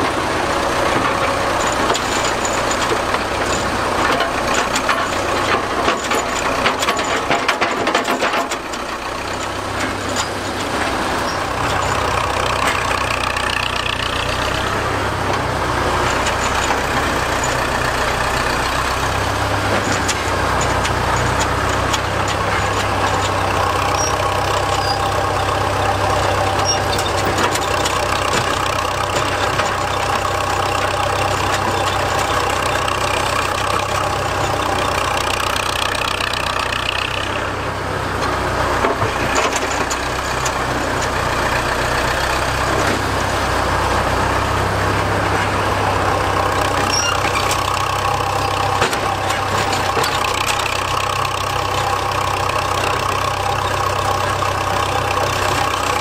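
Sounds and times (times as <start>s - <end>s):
clattering knocks of machinery: 0.0s - 14.6s, 46.2s - 56.0s
excavator engine running: 0.0s - 56.0s.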